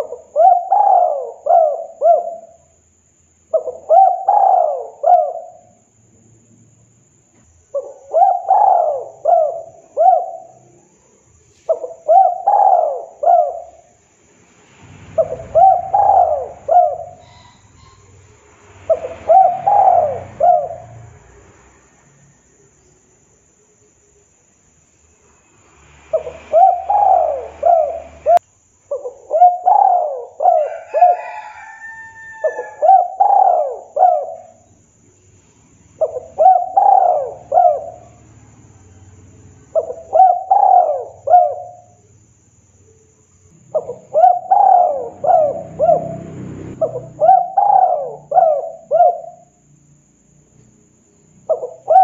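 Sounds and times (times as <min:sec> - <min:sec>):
dove cooing: 0:00.0 - 0:02.7, 0:03.5 - 0:05.8, 0:07.6 - 0:10.9, 0:11.6 - 0:14.0, 0:15.1 - 0:21.2, 0:26.1 - 0:34.7, 0:36.0 - 0:38.4, 0:39.7 - 0:42.0, 0:43.7 - 0:49.6, 0:51.5 - 0:52.0.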